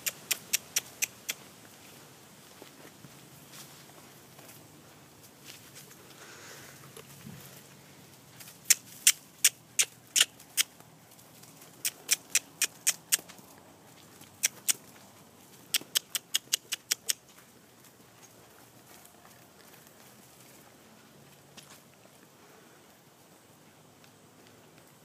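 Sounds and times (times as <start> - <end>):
tongue clucking: 0.0 - 1.4, 8.7 - 10.7, 11.8 - 13.2, 15.7 - 17.2.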